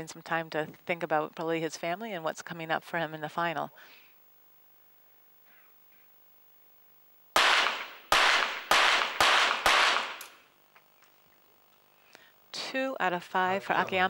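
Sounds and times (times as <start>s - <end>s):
pistol shots: 7.4s - 10.4s.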